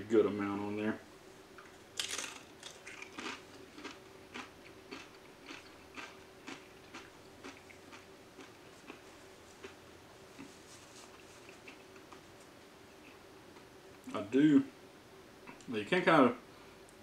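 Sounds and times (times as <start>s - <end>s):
chip crunching: 1.6s - 9.8s.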